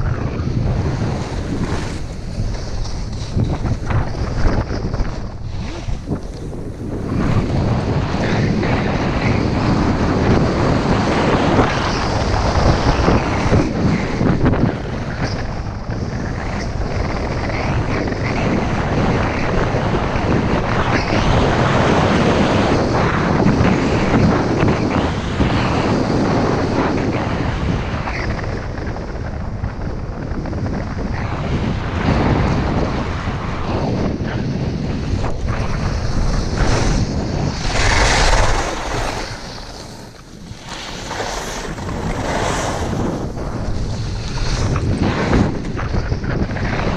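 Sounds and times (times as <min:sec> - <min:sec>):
skis scraping over snow: 0:00.0 - 0:15.4, 0:30.6 - 0:46.9
wind buffeting microphone: 0:00.0 - 0:46.9.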